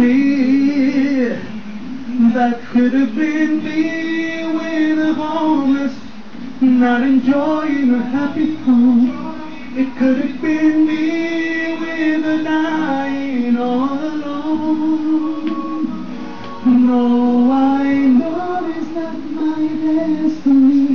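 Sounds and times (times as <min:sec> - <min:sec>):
man singing into microphone: 0:00.0 - 0:16.0, 0:16.6 - 0:20.9
a cappella group singing in harmony: 0:02.2 - 0:16.0, 0:16.6 - 0:20.9.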